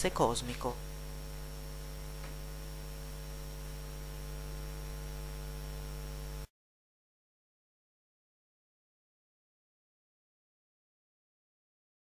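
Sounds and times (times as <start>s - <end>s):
electrical mains hum with hiss: 0.0s - 6.5s.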